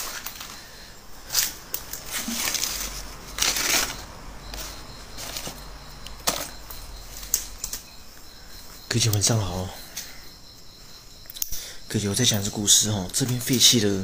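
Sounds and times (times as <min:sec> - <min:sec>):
hand rummaging through papers: 0:00.0 - 0:07.9.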